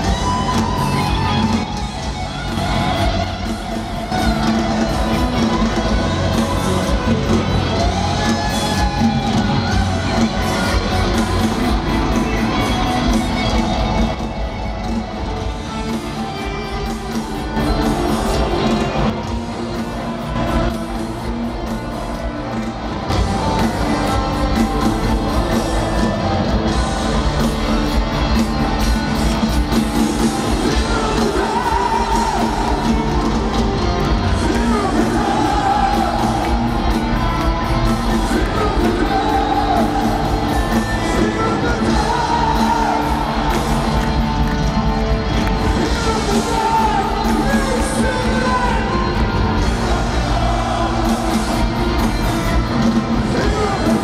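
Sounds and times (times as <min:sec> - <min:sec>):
audience singing and yelling: 0:00.0 - 0:54.0
loud live band music: 0:00.0 - 0:54.0.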